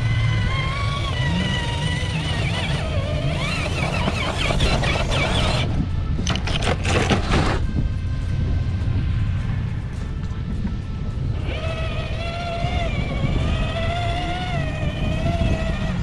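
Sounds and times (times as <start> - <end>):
electric motor whining: 0.0 - 9.0, 10.0 - 16.0
low rumble: 0.0 - 16.0
toy truck knocking and scraping on rock: 0.5 - 7.7.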